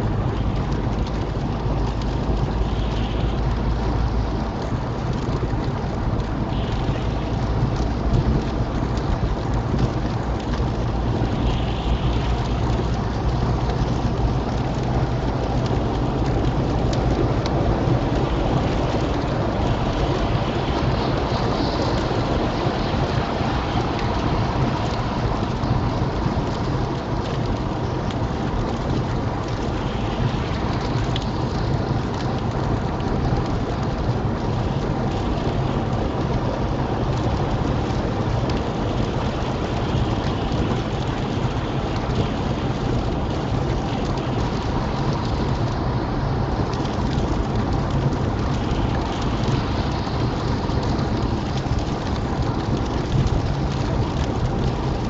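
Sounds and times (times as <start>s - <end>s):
low rumble: 0.0s - 55.0s
rain hitting car windscreen: 0.0s - 55.0s
tyre and road noise: 0.0s - 55.0s.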